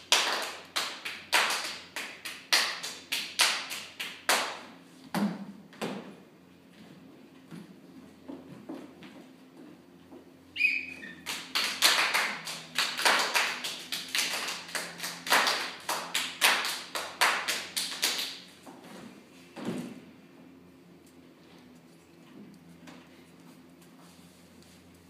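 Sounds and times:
hand claps and slaps: 0.0 - 5.4, 11.2 - 18.5
brief squeak: 10.6 - 11.2.

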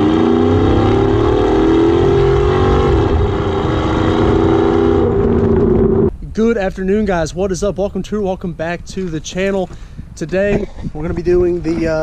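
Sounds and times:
engine revving high: 0.0 - 6.1.

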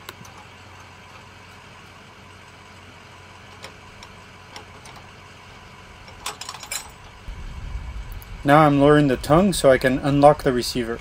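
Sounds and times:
steady low hum: 0.0 - 11.0
faint metallic chain clicks: 6.1 - 7.0.

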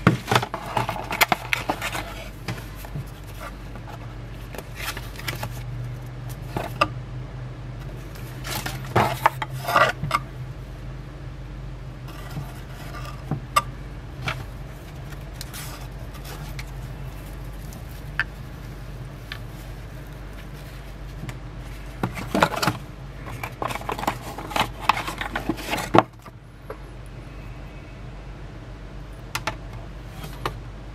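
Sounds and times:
cardboard box handling: 0.0 - 5.7, 7.8 - 10.2, 14.2 - 26.2
steady low hum: 0.0 - 30.9.

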